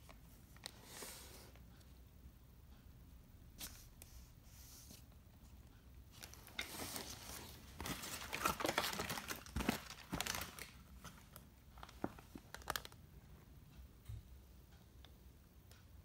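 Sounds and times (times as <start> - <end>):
packaging crinkling and rustling: 6.1 - 13.0.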